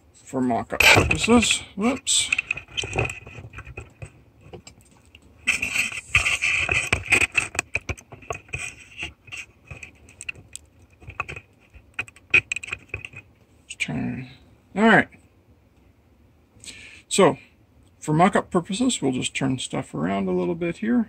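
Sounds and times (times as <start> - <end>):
small parts clicking and scraping: 0.8 - 13.3.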